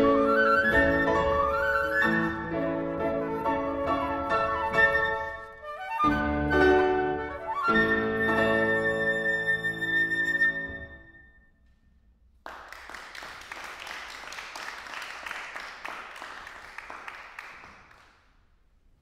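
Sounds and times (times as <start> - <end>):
flute and piano chord: 0.0 - 11.5
audience applause: 12.4 - 18.2.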